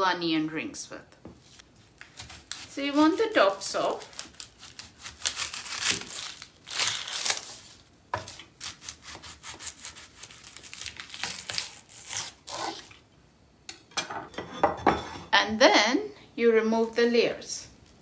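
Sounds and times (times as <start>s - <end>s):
onion skin rustling and tearing: 1.4s - 13.0s
knife cutting onion on wooden board: 8.2s - 10.4s.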